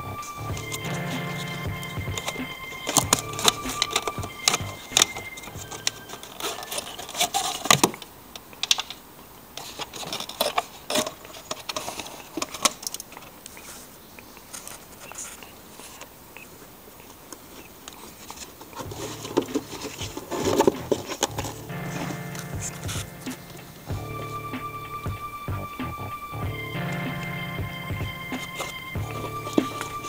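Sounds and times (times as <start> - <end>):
taps and scrapes: 0.5 - 8.0, 17.9 - 24.0, 27.9 - 30.0
plastic parts clicking and rattling: 0.5 - 9.0, 9.6 - 13.7, 17.1 - 22.5.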